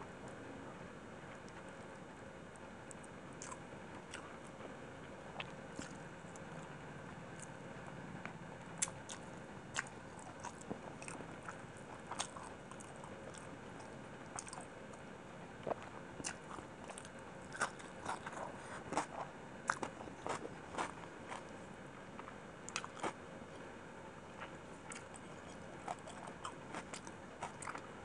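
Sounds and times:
chewing and mouth smacks: 5.4 - 6.4, 8.8 - 14.6, 24.4 - 27.8.

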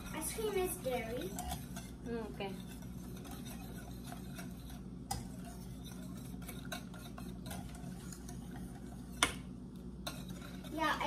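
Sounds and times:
metal spoon stirring in saucepan: 0.0 - 11.0.

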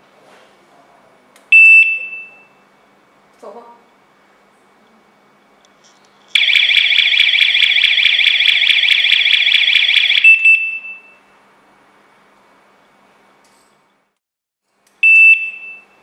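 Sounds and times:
warbling alarm siren: 6.3 - 11.0
short beep: 15.0 - 16.0.

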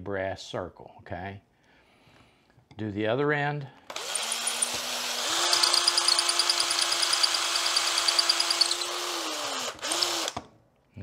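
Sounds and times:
cutter shaving wood: 3.9 - 10.5
electric drill motor: 3.9 - 10.5.

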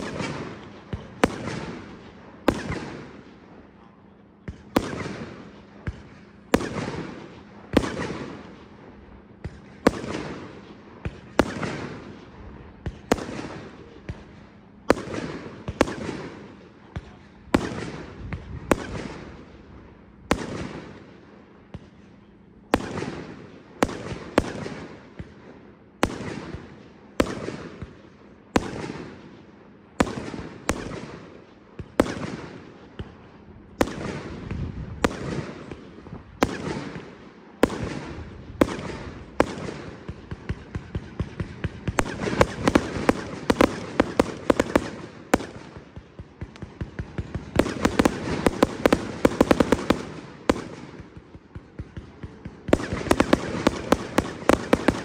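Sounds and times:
firework bangs: 0.0 - 3.4, 4.4 - 8.7, 33.8 - 55.0
firework crackling: 41.4 - 51.3, 52.6 - 55.0.

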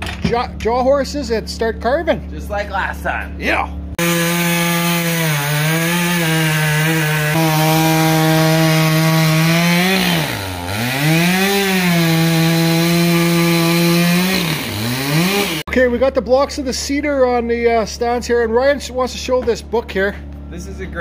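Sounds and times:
chainsaw cutting wood: 4.0 - 15.7.

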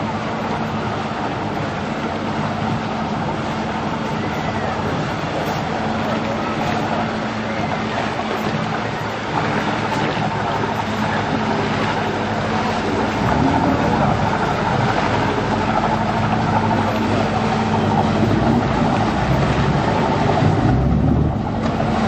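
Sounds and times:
motor boat engine rumbling: 0.0 - 22.0.

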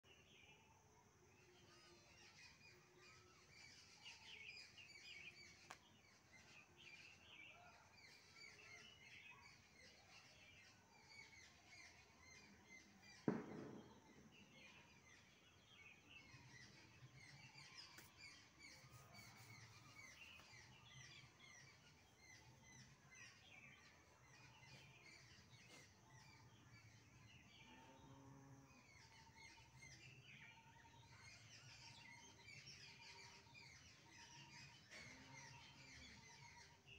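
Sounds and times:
faint bird chirping: 0.0 - 36.9
sharp thump: 13.2 - 14.2.

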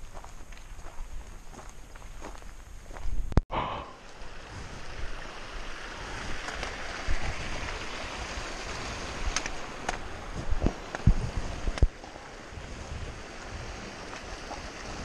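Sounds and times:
mountain stream rushing over rocks: 3.9 - 15.0.

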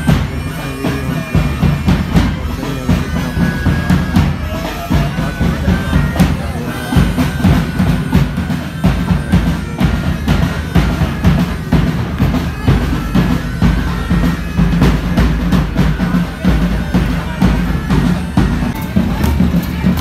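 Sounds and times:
loud music with drum beat: 0.0 - 20.0.

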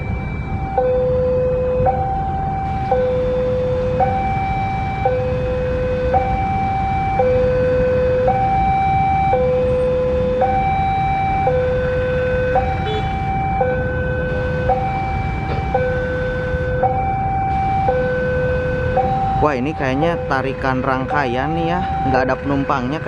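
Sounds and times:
level crossing two-tone alarm: 0.0 - 23.0
diesel locomotive rumble: 12.6 - 18.3, 18.9 - 23.0.

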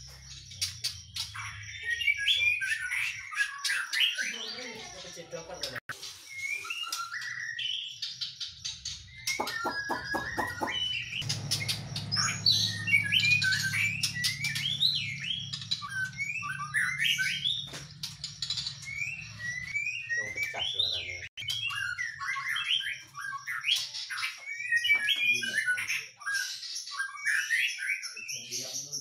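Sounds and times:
songbirds singing: 0.0 - 29.0.

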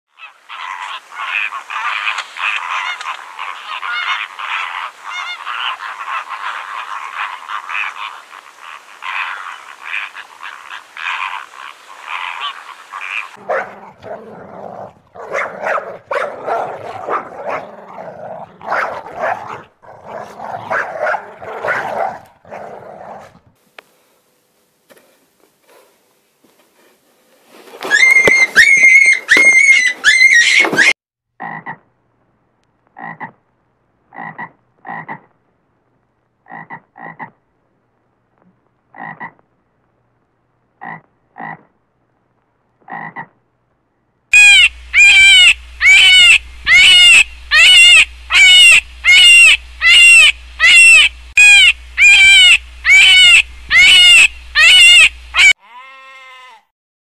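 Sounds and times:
flamingos honking and calling: 0.2 - 14.1, 44.4 - 55.6
dog barking: 13.4 - 14.3, 15.2 - 17.9, 18.6 - 22.7.

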